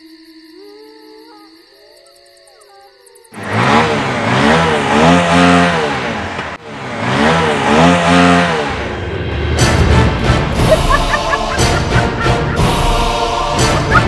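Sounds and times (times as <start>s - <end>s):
motorcycle engine revving: 3.3s - 14.0s
soft music: 9.6s - 14.0s.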